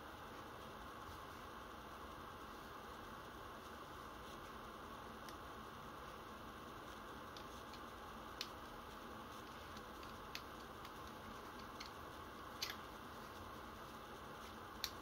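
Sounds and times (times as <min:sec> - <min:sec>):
faint steady hiss: 0:00.0 - 0:15.0
clicks of toy revolver parts: 0:12.6 - 0:12.8.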